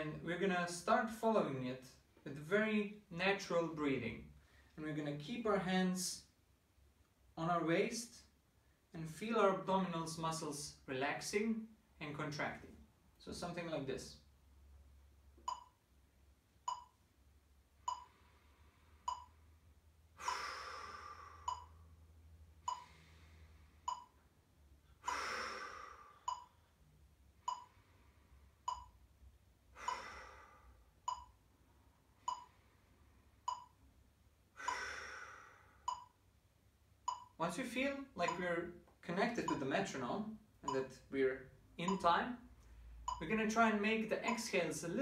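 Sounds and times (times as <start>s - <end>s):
deep breath: 18.0s - 19.5s, 20.1s - 22.0s, 22.6s - 24.1s, 24.9s - 26.8s, 29.7s - 31.0s, 34.5s - 36.2s
metronome beeping: 21.4s - 21.8s, 22.6s - 23.0s, 38.2s - 38.5s, 40.6s - 41.0s, 41.8s - 42.2s, 43.1s - 44.8s.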